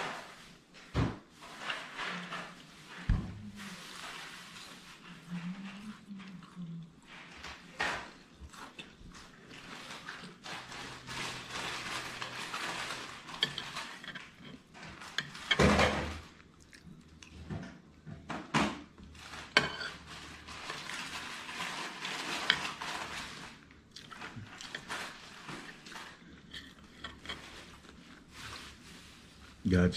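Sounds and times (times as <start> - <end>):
metal spoon scraping a plate: 10.6 - 15.6, 19.4 - 23.4, 24.6 - 27.9.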